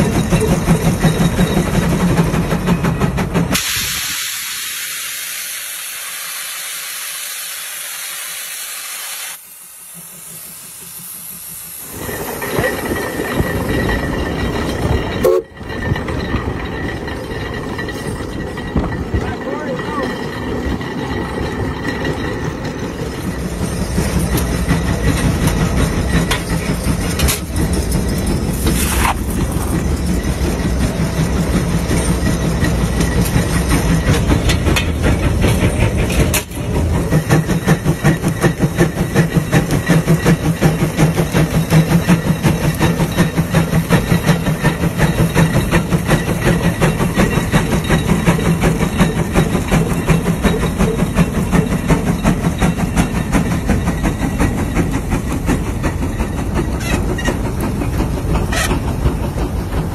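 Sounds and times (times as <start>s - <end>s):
steam engine exhaust chuffing: 20.6s - 59.9s.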